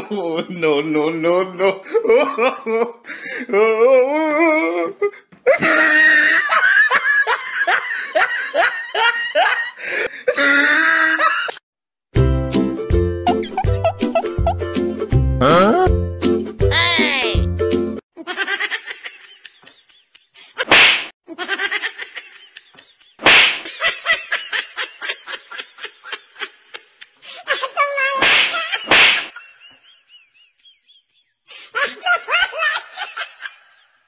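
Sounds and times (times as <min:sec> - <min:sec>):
loud smack-like bursts: 0:20.6 - 0:21.1, 0:23.2 - 0:23.7, 0:28.2 - 0:29.3.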